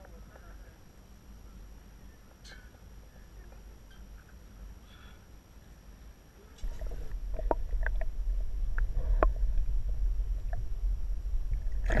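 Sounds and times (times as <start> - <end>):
muffled underwater rumble: 6.4 - 12.0.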